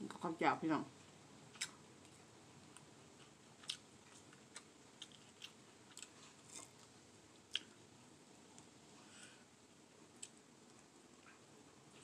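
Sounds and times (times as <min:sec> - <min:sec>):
faint chewing: 0:01.5 - 0:07.8.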